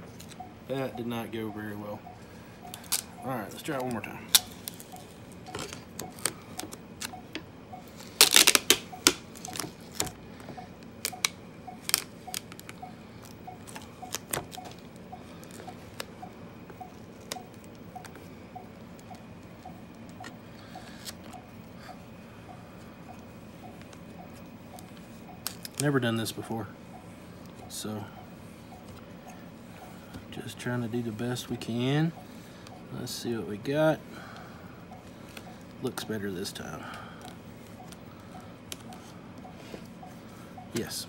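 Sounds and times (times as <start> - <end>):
faint steady computer beep: 0.0 - 41.0
vinyl sheet peeling and crackling: 7.9 - 10.2, 11.0 - 14.8.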